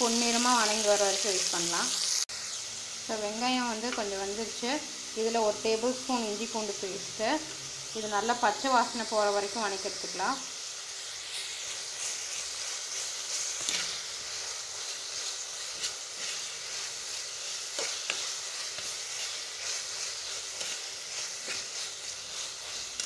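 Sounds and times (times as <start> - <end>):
onions sizzling in hot oil: 0.0 - 23.0
metal spatula scraping pot: 13.3 - 14.0.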